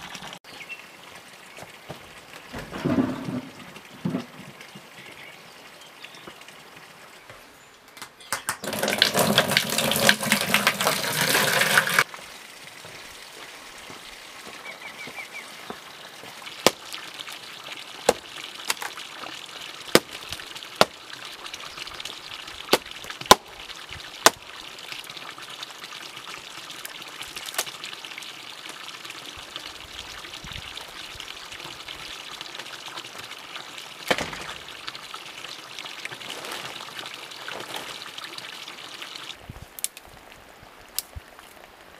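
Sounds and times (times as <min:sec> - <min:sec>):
water gushing from a hose: 0:00.0 - 0:07.2, 0:08.6 - 0:41.8
hatchet chopping dry wood: 0:16.6 - 0:16.8, 0:20.0 - 0:20.2, 0:22.7 - 0:23.5.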